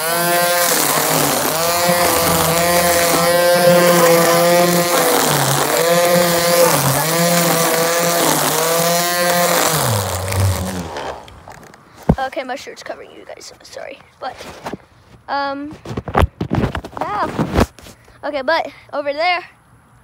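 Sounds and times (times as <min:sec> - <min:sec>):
string trimmer engine: 0:00.0 - 0:11.7.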